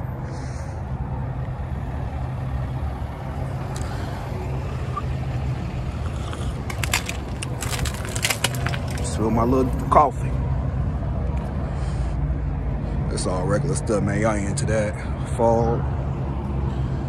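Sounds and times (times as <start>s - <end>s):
vehicle engine rumbling: 0.0s - 13.1s
clicks and rattles: 6.5s - 9.2s.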